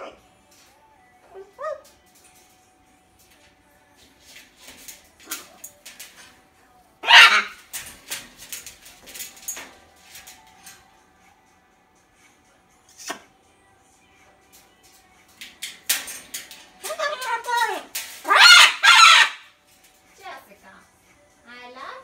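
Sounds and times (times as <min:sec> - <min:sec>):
parrot squawking: 0:01.2 - 0:01.9, 0:07.0 - 0:07.9, 0:16.8 - 0:19.5
falling bird call: 0:18.2 - 0:19.4.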